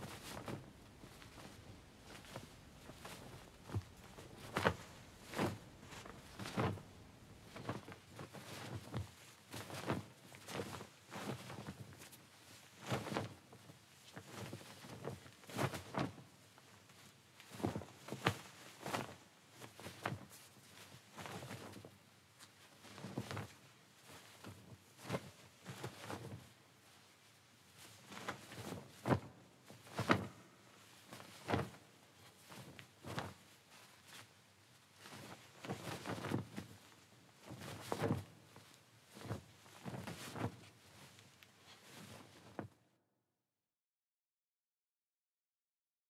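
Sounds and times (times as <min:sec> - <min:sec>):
slow footsteps: 0:00.0 - 0:08.9.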